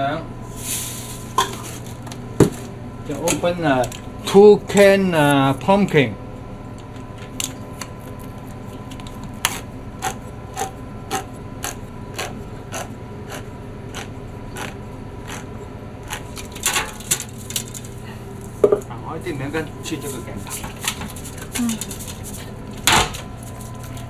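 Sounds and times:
knocks on metal can: 18.6 - 18.8.

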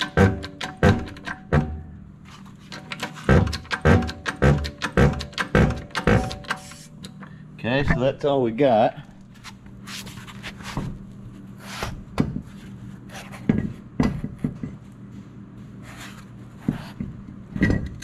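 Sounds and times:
wheel knocking and scraping on hub: 0.0 - 6.8
steady low hum: 0.0 - 18.0.

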